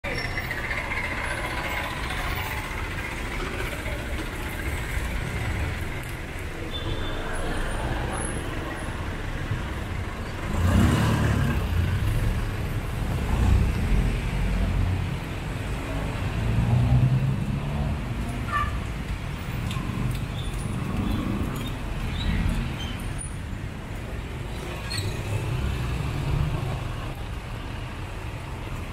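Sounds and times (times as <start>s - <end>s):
passing vehicles: 0.0s - 28.9s
vehicle engine close by: 0.2s - 18.4s.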